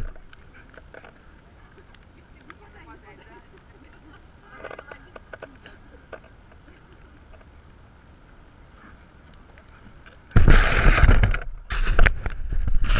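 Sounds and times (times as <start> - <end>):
faint ticks: 0.0 - 7.8, 8.8 - 10.4
grass rubbing against microphone: 8.8 - 12.9.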